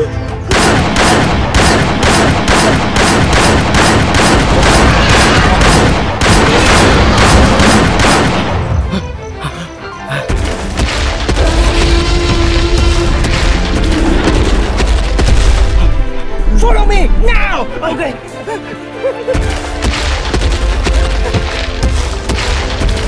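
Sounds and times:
action background music: 0:00.0 - 0:23.0
handgun gunfire: 0:00.5 - 0:08.5.

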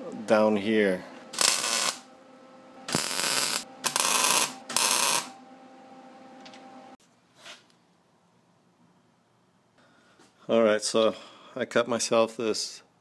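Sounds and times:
welding arc bursts: 0:01.3 - 0:02.1, 0:02.9 - 0:05.3.

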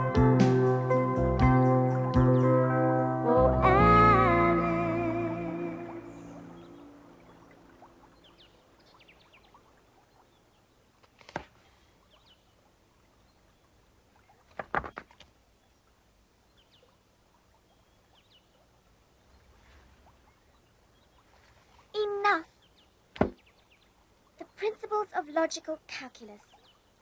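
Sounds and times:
music: 0:00.0 - 0:06.8
faint bird chirps: 0:05.4 - 0:10.8, 0:15.5 - 0:24.8, 0:26.2 - 0:27.0.

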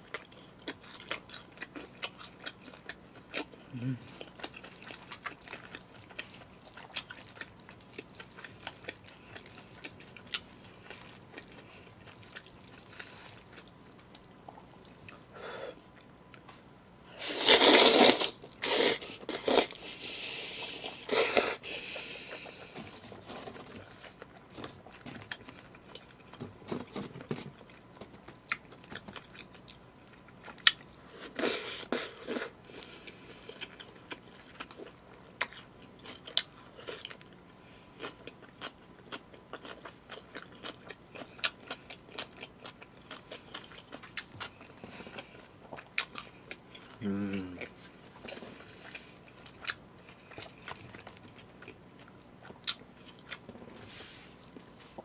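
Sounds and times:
person chewing: 0:00.0 - 0:16.6, 0:17.2 - 0:37.4, 0:38.0 - 0:55.0
loud noodle slurping: 0:17.2 - 0:22.4.

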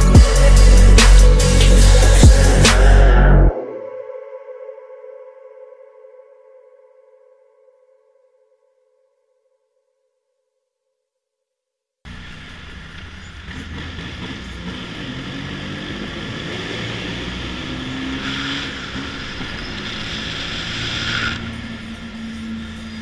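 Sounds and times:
car engine and tyre noise: 0:00.0 - 0:03.5, 0:12.1 - 0:23.0.

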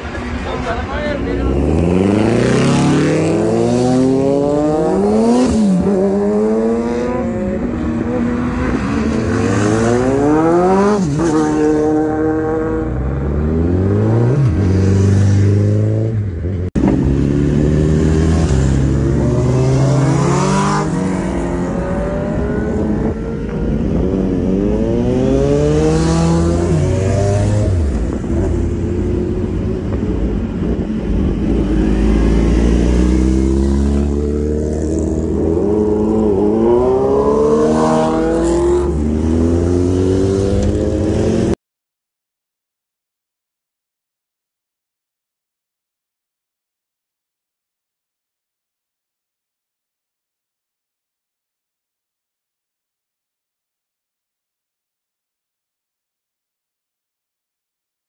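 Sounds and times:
motorcycles accelerating past: 0:01.3 - 0:41.6.

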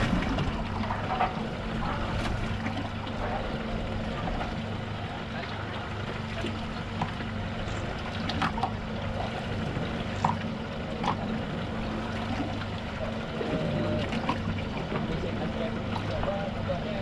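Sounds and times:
steady low hum: 0:00.0 - 0:17.0
water sloshing against hull: 0:00.0 - 0:17.0.

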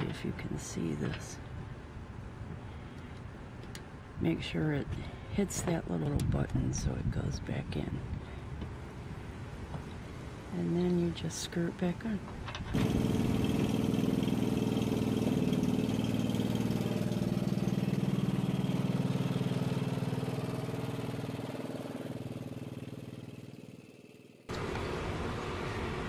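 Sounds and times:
riding mower engine running: 0:12.2 - 0:26.0.

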